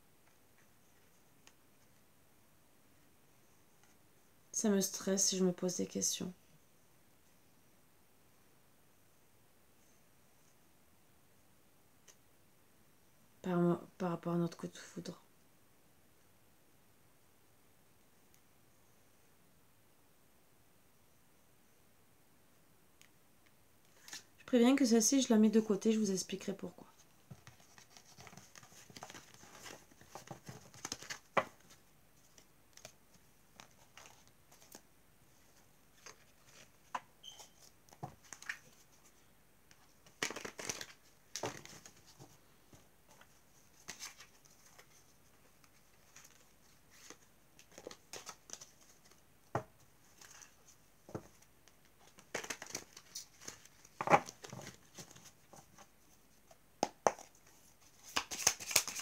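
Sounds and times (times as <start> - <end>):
cards being shuffled: 23.9 - 24.3, 27.3 - 34.8, 36.0 - 38.9, 39.7 - 49.2, 50.1 - 55.9, 56.9 - 59.0.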